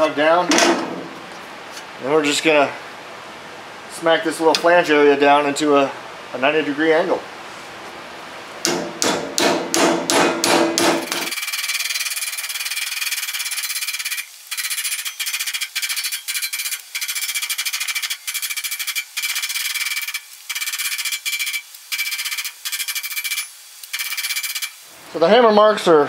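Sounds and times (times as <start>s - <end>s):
hammer on aluminum sheet: 8.6s - 11.4s.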